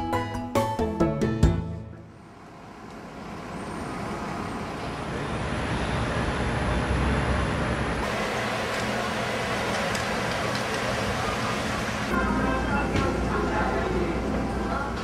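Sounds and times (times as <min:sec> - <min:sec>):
traffic rumble and hiss: 0:02.2 - 0:12.2.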